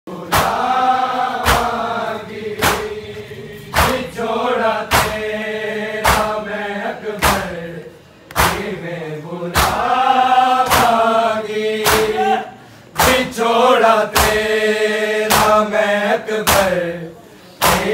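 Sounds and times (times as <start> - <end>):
men chanting together: 0.1 - 17.9
chest-beating slaps: 0.3 - 0.8, 1.4 - 1.9, 2.6 - 3.0, 3.7 - 4.2, 4.8 - 5.3, 6.0 - 6.4, 7.2 - 7.6, 8.2 - 8.8, 9.5 - 9.9, 10.6 - 11.0, 11.8 - 12.2, 13.0 - 13.3, 14.1 - 14.5, 15.3 - 15.6, 16.4 - 16.8, 17.6 - 17.9.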